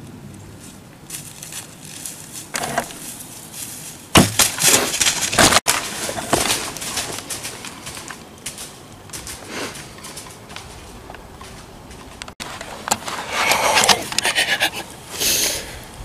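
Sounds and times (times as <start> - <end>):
deer crashing through dry leaves: 0.6 - 12.1
sharp crack: 4.1 - 13.0.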